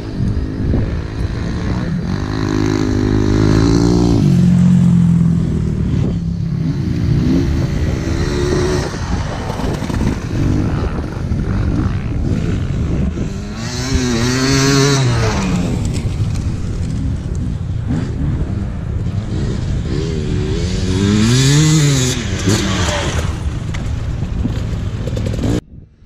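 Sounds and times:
distant dirt bikes revving: 0.0s - 25.7s
dirt bike passing: 0.0s - 26.0s.

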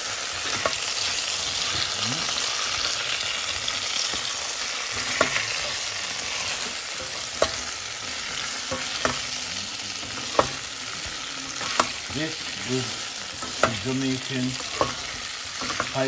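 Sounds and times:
chicken wings sizzling in oil: 0.0s - 16.0s
utensil clacking against pot: 10.0s - 10.7s, 13.3s - 13.9s, 14.5s - 16.0s.

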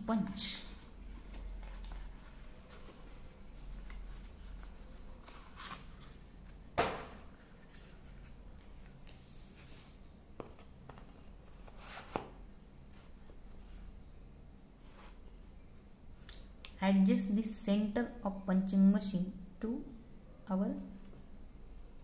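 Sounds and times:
paper rustling: 0.7s - 6.3s.

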